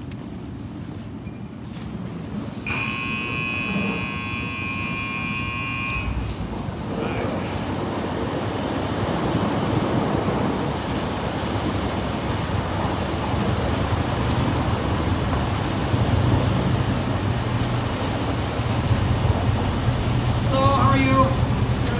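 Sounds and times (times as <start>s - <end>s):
steady rushing noise: 3.8s - 21.9s
vehicle rumbling up: 6.0s - 21.9s.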